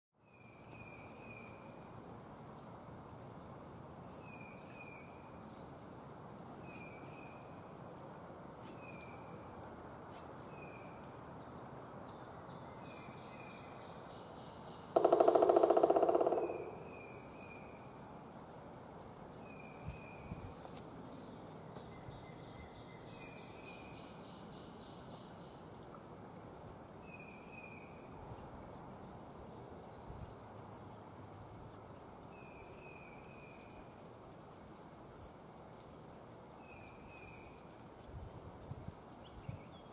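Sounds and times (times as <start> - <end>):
woodpecker drumming on wood: 15.0 - 17.1.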